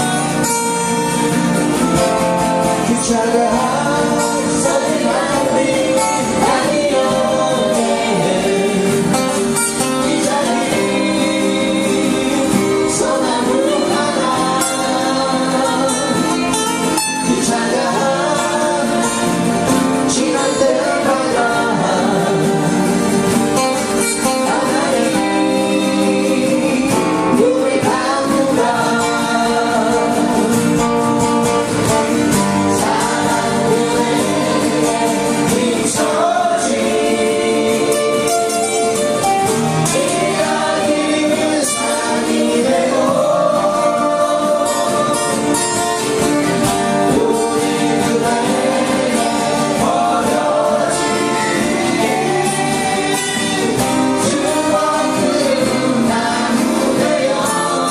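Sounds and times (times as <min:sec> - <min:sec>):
strummed acoustic guitars: 0:00.0 - 0:57.9
woman singing: 0:02.8 - 0:23.0, 0:24.2 - 0:30.5, 0:47.0 - 0:57.9.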